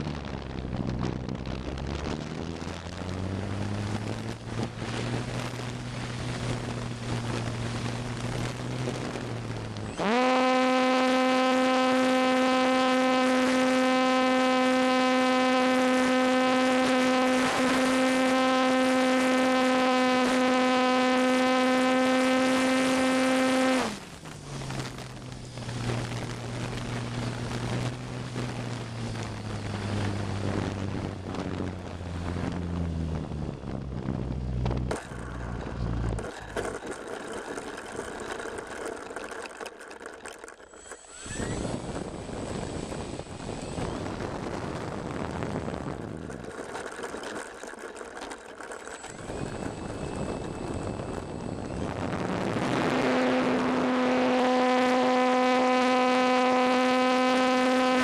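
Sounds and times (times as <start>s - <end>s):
rc plane motor and propeller whine: 0.1s - 58.0s.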